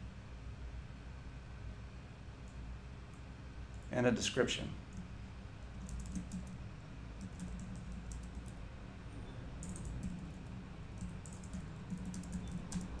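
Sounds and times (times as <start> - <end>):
steady low hum: 0.0 - 13.0
keyboard typing: 5.7 - 6.6, 7.2 - 8.6, 9.6 - 13.0.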